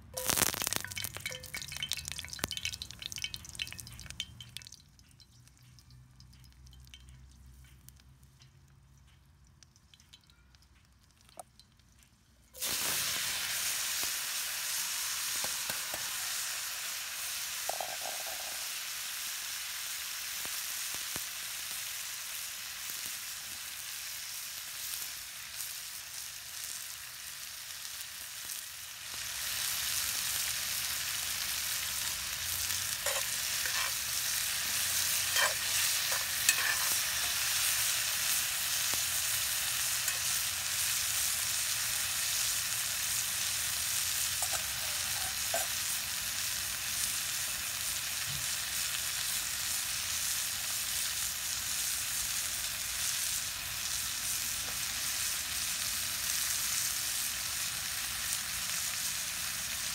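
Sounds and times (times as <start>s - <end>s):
mushrooms sizzling in oil: 0.0s - 4.5s, 12.6s - 59.9s.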